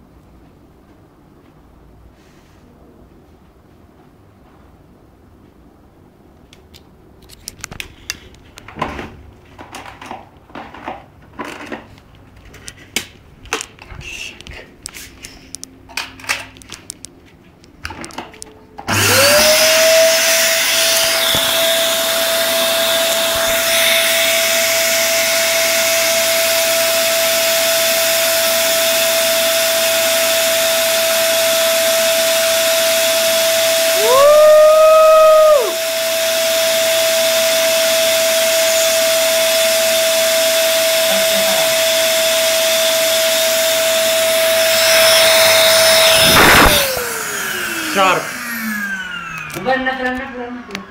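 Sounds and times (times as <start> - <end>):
vacuum cleaner whining: 18.8 - 50.9.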